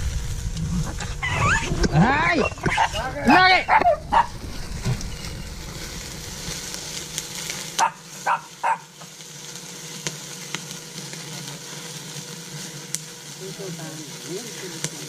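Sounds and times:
wood fire crackling: 0:00.0 - 0:15.0
dog yipping: 0:02.6 - 0:04.4, 0:07.8 - 0:08.9.

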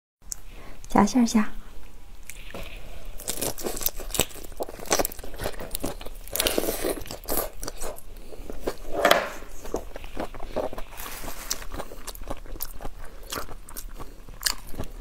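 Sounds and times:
shrimp shell crunching: 0:03.2 - 0:08.8.

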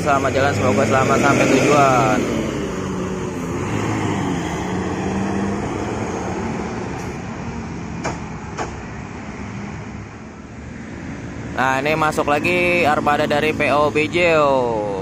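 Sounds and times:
bus diesel engine pulling away: 0:00.0 - 0:10.7
passing road traffic: 0:00.0 - 0:15.0.

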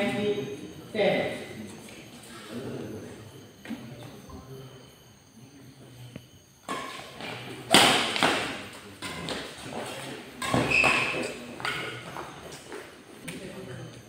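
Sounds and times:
rackets hitting shuttlecock: 0:06.6 - 0:09.6, 0:10.4 - 0:11.9.

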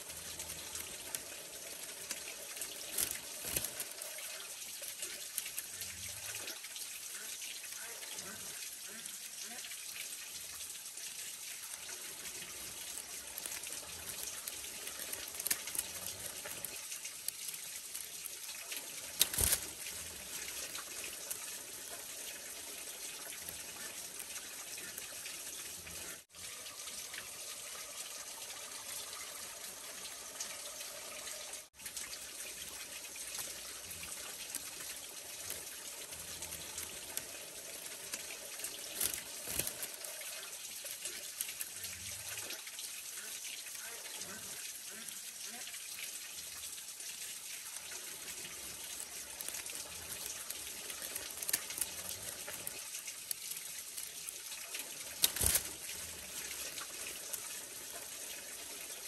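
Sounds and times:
bamboo strips clicking: 0:00.0 - 0:06.6, 0:11.2 - 0:26.2, 0:32.0 - 0:44.4, 0:47.6 - 0:58.6.

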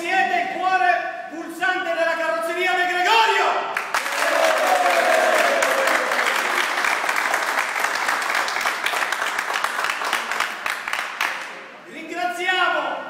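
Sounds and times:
people applauding: 0:03.8 - 0:11.6.

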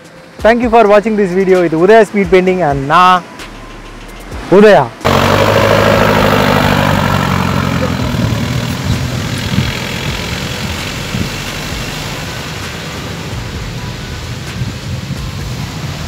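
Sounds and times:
jeep engine driving off: 0:05.0 - 0:16.0.

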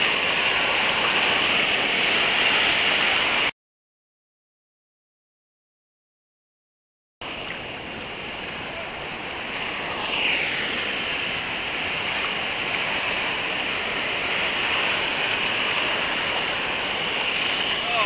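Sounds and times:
ocean surf rushing: 0:00.0 - 0:03.5, 0:07.2 - 0:18.0.

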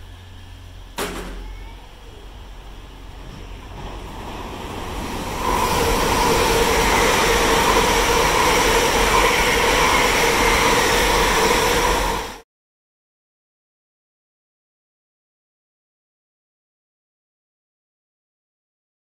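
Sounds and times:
high-speed train passing: 0:00.0 - 0:12.4
train whine: 0:00.0 - 0:12.4.

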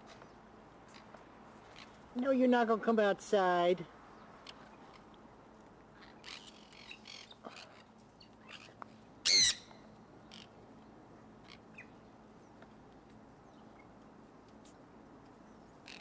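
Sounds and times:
parrots chirping: 0:08.4 - 0:09.6
parrot screeching: 0:09.2 - 0:09.6.

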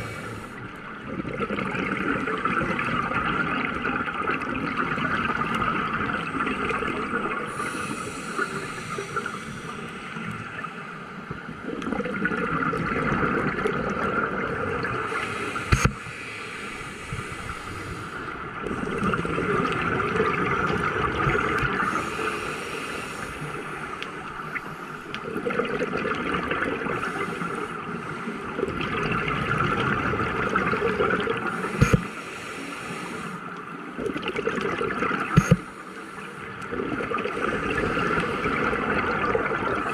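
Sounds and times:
diver breathing through regulator: 0:00.0 - 0:00.6, 0:07.5 - 0:10.3, 0:15.1 - 0:19.0, 0:21.8 - 0:24.0, 0:31.5 - 0:33.5
bubbles gurgling: 0:01.0 - 0:09.4, 0:11.6 - 0:16.0, 0:18.5 - 0:22.2, 0:24.2 - 0:27.6, 0:28.5 - 0:32.1, 0:33.9 - 0:35.6, 0:36.6 - 0:39.9.

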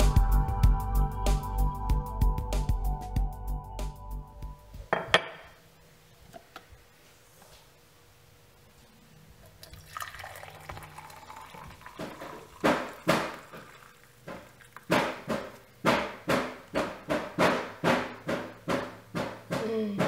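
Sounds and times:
coffee pouring into cup: 0:09.4 - 0:15.7.

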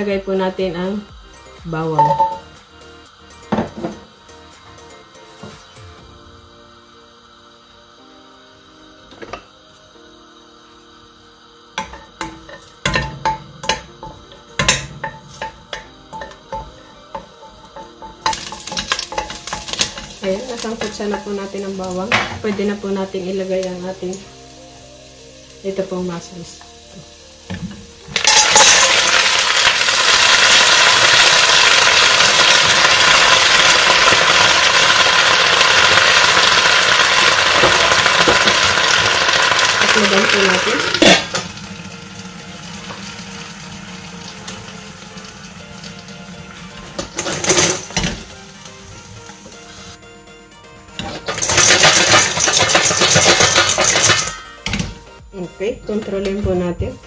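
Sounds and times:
mussels sizzling in hot oil: 0:00.0 - 0:57.0
soft background music: 0:00.0 - 0:57.0.

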